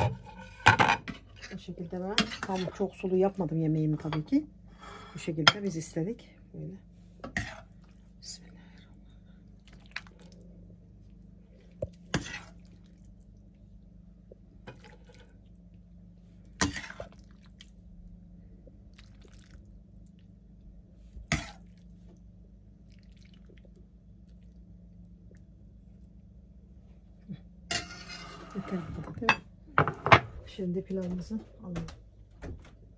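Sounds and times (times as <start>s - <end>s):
steady low hum: 0.0s - 32.9s.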